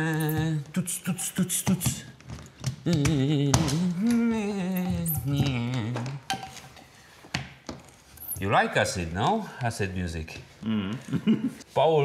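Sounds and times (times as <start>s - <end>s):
man singing wordless tune: 0.0s - 2.1s, 2.8s - 6.3s.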